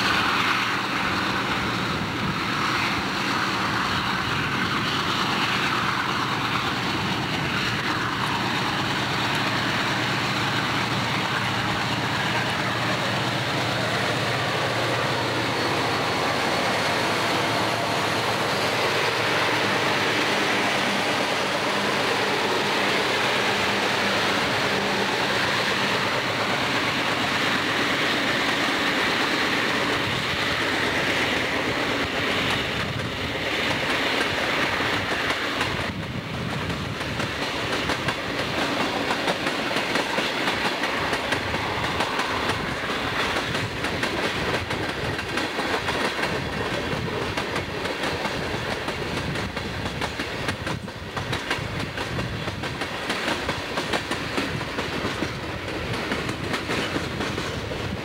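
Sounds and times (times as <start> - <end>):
diesel locomotive engine drone: 0.0 - 58.0
train rumbling on rails: 0.0 - 58.0.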